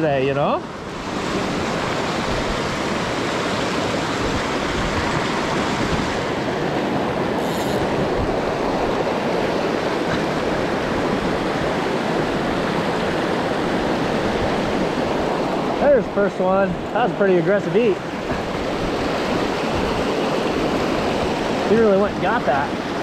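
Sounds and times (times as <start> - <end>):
creek rushing over boulders: 0.0 - 23.0.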